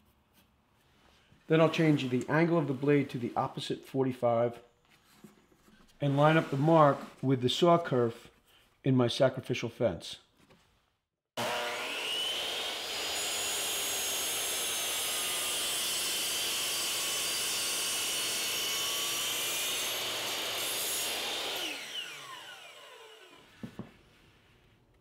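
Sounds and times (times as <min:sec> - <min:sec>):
miter saw cutting wood: 0:11.4 - 0:23.7.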